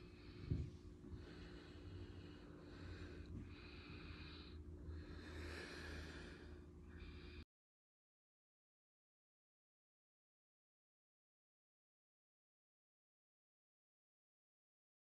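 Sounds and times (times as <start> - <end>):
person breathing: 0.0 - 7.5
steady low hum: 0.0 - 7.5.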